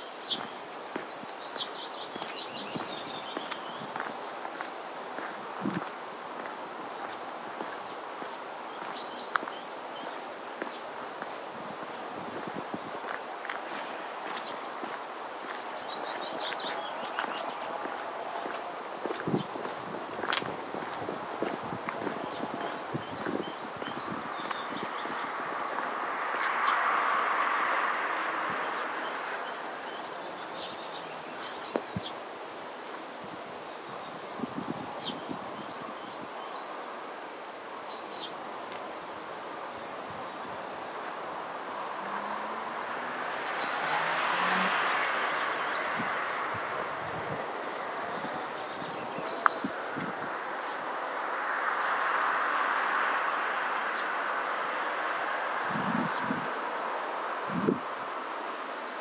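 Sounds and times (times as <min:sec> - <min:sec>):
wind noise hiss: 0:00.0 - 0:59.0
wind gust: 0:16.3 - 0:29.6, 0:42.6 - 0:58.2.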